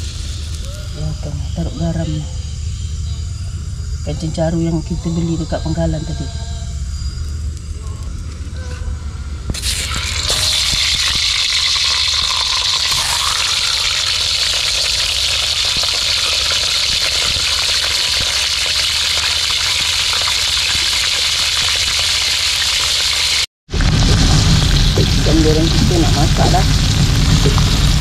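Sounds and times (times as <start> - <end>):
fish sizzling in hot oil: 0.0 - 0.7, 9.6 - 28.0.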